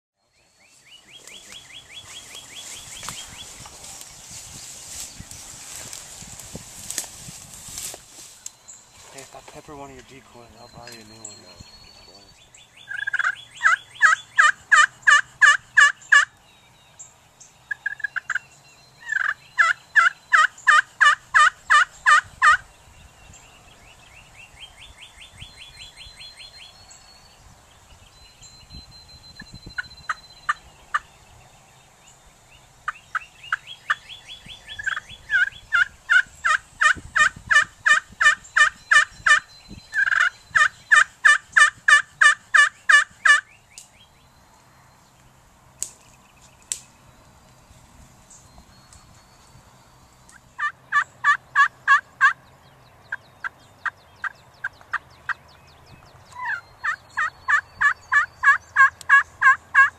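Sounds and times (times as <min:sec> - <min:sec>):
turkey yelps: 0:12.9 - 0:16.2, 0:56.4 - 0:59.9.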